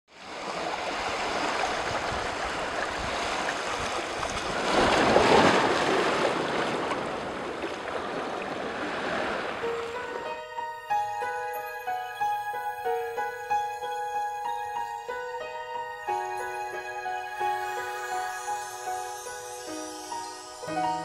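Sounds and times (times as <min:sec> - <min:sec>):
sea water washing: 0:00.2 - 0:11.4
gentle music with held notes: 0:09.6 - 0:21.0.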